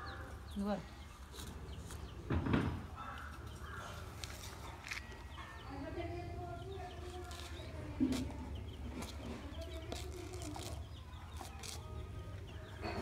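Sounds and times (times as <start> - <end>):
baby chicks peeping: 0.0 - 13.0
thump: 2.3 - 2.8.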